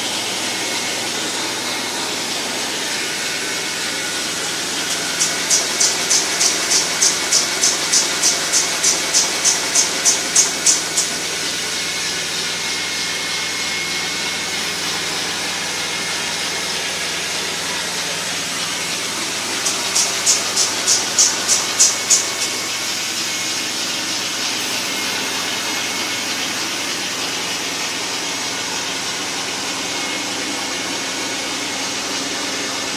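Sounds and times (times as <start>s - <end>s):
rhythmic hissing pulses: 0.0s - 11.6s, 18.3s - 23.3s
carpet extractor vacuum rush: 0.0s - 32.9s.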